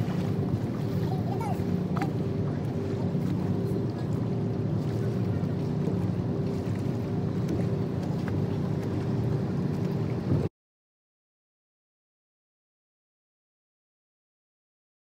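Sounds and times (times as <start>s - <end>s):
boat engine droning: 0.0s - 10.5s.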